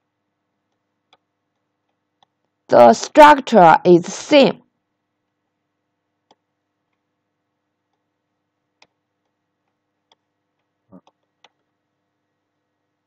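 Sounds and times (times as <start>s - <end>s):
computer mouse clicks: 0.7s - 2.5s, 8.8s - 11.7s.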